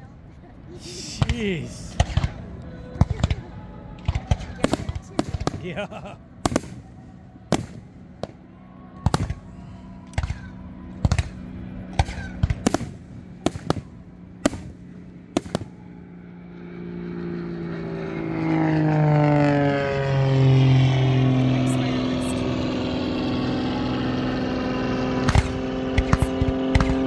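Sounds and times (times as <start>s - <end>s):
engine drone: 0.0s - 27.0s
fireworks bursting: 0.9s - 8.4s, 9.0s - 15.8s, 25.2s - 27.0s.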